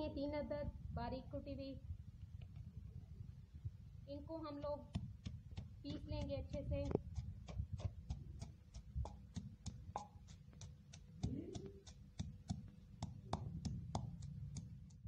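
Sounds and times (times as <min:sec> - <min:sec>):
wooden pestle pounding in mortar: 0:04.8 - 0:15.0.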